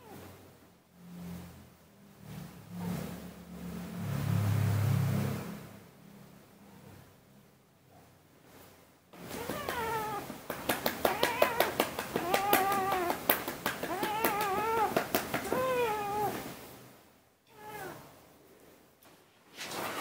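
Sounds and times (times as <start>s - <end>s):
cat meowing: 9.2s - 16.5s, 17.5s - 18.1s
sharp clicks or taps: 10.5s - 15.6s.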